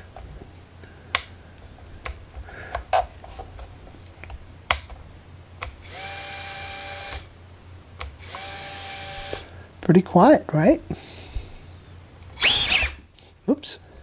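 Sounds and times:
drone motors whining: 8.2 - 9.5, 12.4 - 13.0.

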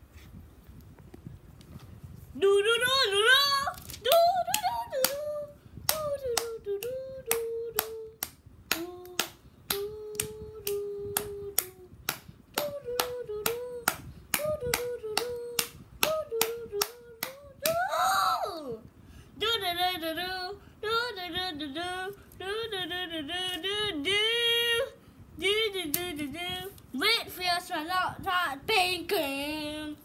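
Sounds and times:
person humming a tune: 5.0 - 17.9
sharp claps: 5.9 - 17.8.

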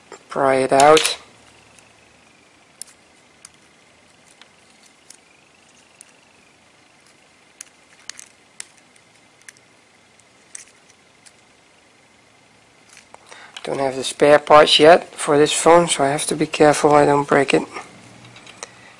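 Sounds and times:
small clicks and ticks: 7.0 - 11.5.

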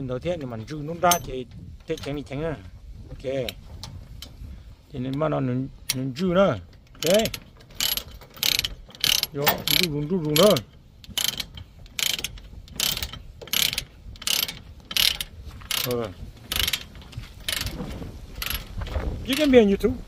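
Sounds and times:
ratchet pawl clicking: 6.8 - 19.7.

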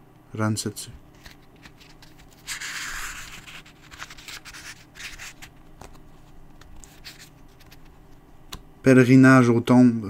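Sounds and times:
book page turning: 1.1 - 8.0.

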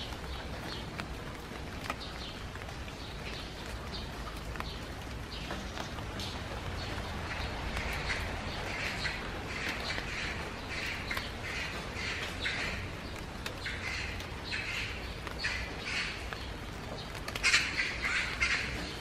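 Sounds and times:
bird calling: 6.8 - 19.0.

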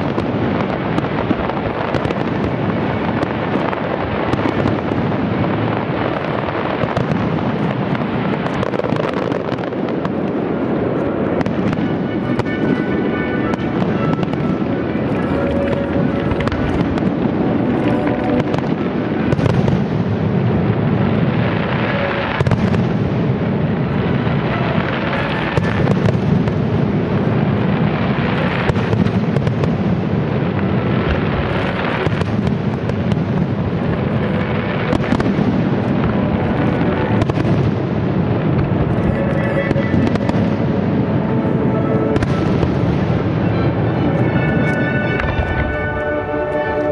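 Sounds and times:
fireworks crackling and banging: 0.0 - 46.9
music playing: 39.0 - 46.9.

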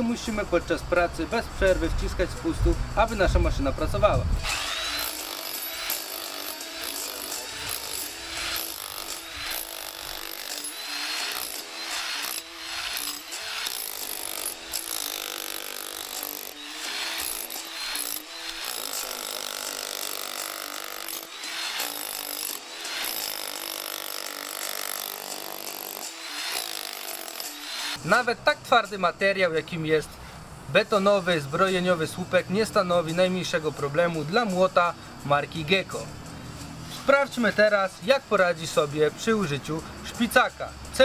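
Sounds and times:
demolition hammer chiselling concrete: 4.5 - 28.0.

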